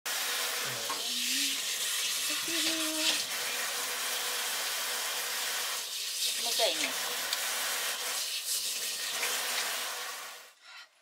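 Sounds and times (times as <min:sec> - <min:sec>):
shower spraying water: 0:00.1 - 0:10.6.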